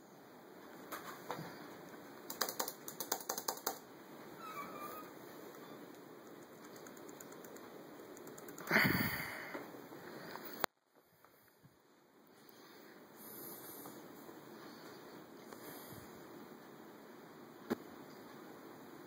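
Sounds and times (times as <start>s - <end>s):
sharp keyboard clicks: 2.2s - 3.9s, 5.5s - 8.8s
faint steady hiss: 5.0s - 19.0s.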